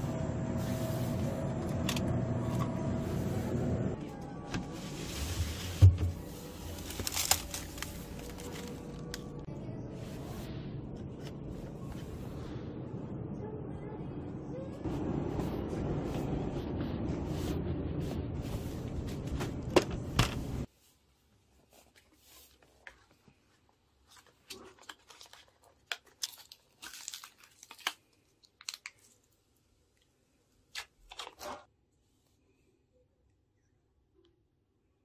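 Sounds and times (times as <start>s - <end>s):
store background noise: 0.0s - 31.7s
cardboard crinkling and tearing: 6.4s - 9.3s, 24.1s - 29.2s.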